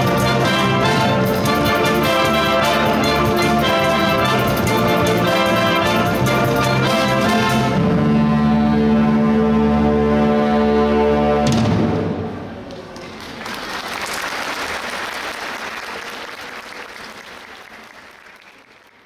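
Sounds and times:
audience applause: 12.7 - 19.0.

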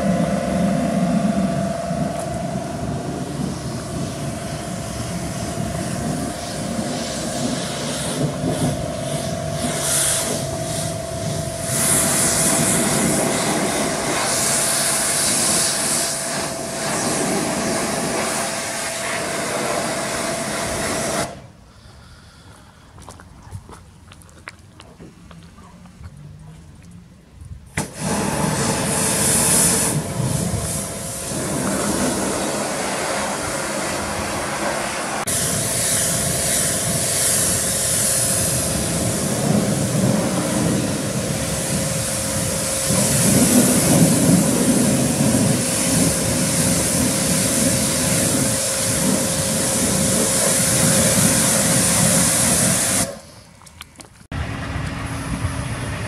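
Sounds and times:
truck engine idling: 0.0 - 20.7
pressure washer spraying water: 0.0 - 21.4, 27.8 - 53.4.

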